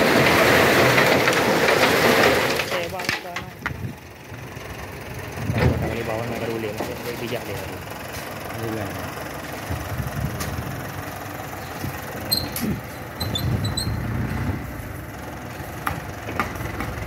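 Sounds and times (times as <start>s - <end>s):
diesel truck engine running: 0.0s - 17.0s
brief high squeaks: 12.3s - 14.1s.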